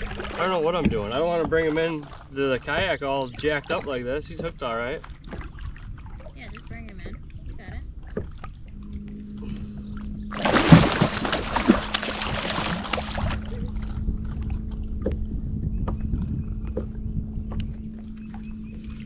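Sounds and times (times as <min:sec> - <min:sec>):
steady low hum: 0:00.0 - 0:19.0
fish thrashing and splashing: 0:10.3 - 0:14.6.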